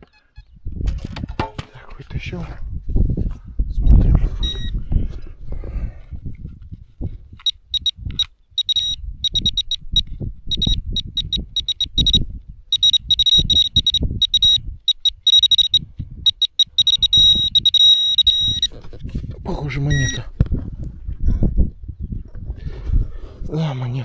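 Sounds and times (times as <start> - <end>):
metal detector pinpointer beeping: 4.4 - 4.7, 7.4 - 18.7, 19.9 - 20.3.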